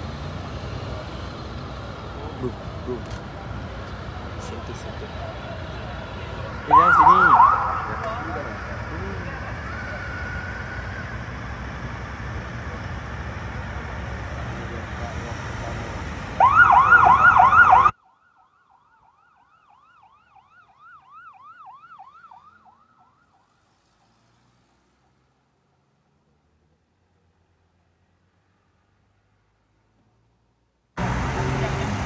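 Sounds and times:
street traffic noise: 0:00.0 - 0:32.0
police siren yelp: 0:06.5 - 0:11.4, 0:16.4 - 0:23.5.

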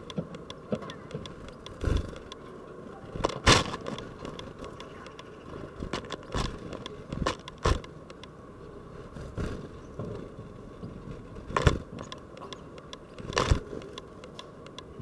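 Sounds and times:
small ticks and scratches: 0:00.0 - 0:15.0
wings fluttering: 0:00.7 - 0:02.4, 0:03.1 - 0:08.0, 0:08.9 - 0:14.0
birds knocking at window: 0:03.2 - 0:08.4.

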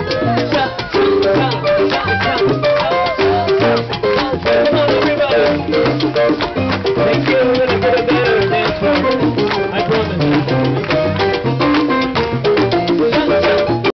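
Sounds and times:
live salsa band playing: 0:00.0 - 0:13.9
percussion strokes: 0:00.0 - 0:13.9.

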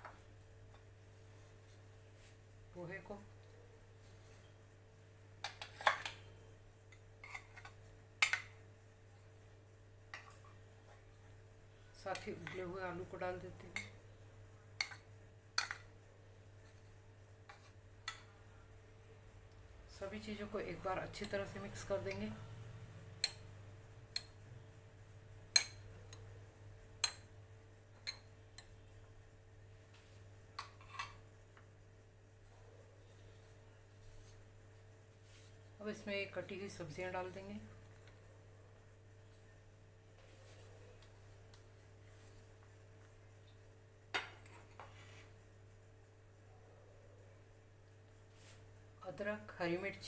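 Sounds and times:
low steady hum: 0:00.0 - 0:50.0.

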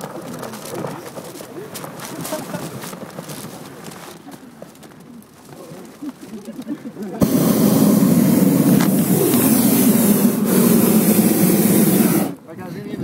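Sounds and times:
propane burner roaring: 0:07.1 - 0:12.5.

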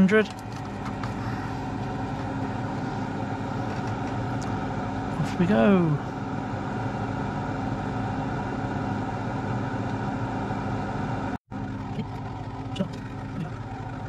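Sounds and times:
extractor fan humming: 0:00.0 - 0:14.0.

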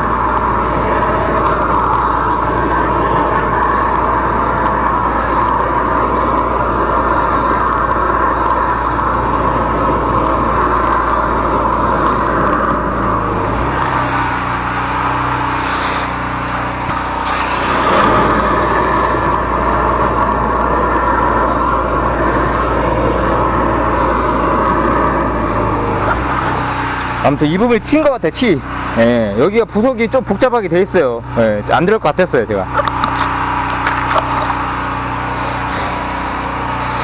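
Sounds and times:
drain jetter engine running: 0:00.0 - 0:27.3
sharp hiss: 0:17.0 - 0:19.2.

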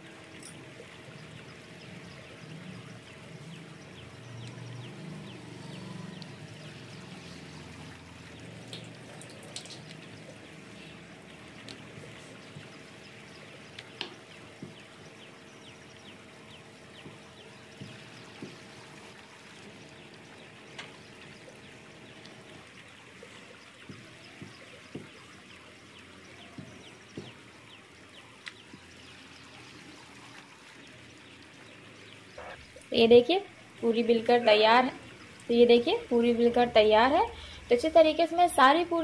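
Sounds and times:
faint steady hum: 0:00.0 - 0:39.0.

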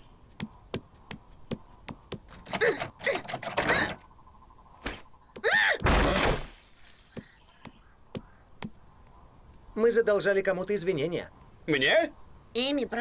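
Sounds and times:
cartoon footsteps on wooden floor: 0:00.3 - 0:04.0, 0:07.1 - 0:08.8.

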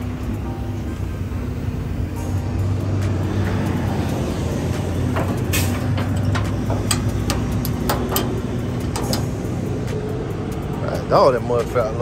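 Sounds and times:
diesel truck engine idling: 0:00.0 - 0:12.0
sharp clicks and knocks: 0:05.0 - 0:09.5.

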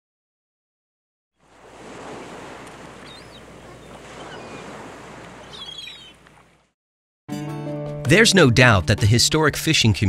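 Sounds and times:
water washing like waves: 0:01.4 - 0:06.6.

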